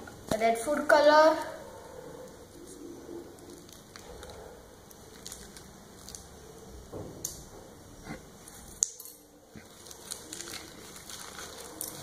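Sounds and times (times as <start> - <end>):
plastic packet crinkling: 3.4 - 6.4, 9.6 - 12.0.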